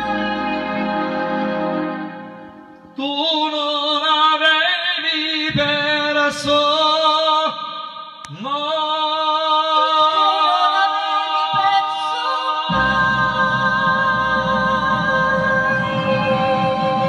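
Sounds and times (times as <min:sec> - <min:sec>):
woman and man singing: 0:08.3 - 0:17.0.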